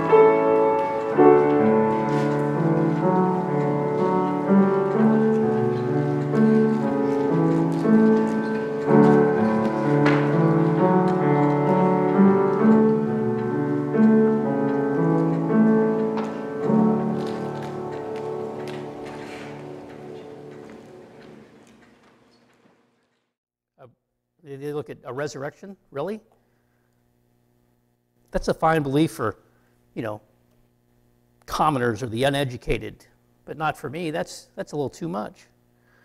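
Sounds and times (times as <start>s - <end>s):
slow piano music: 0.0s - 22.0s.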